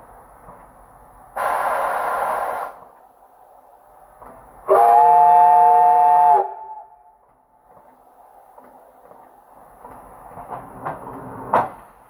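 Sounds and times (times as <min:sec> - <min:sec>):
locomotive steam hiss: 0:00.0 - 0:06.8
steam whistle chord: 0:04.7 - 0:07.0.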